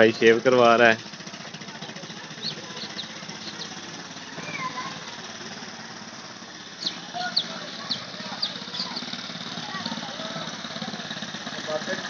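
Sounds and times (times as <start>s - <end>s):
engine idling: 0.0s - 12.0s
faint bird chirps: 2.4s - 3.8s, 6.8s - 9.1s.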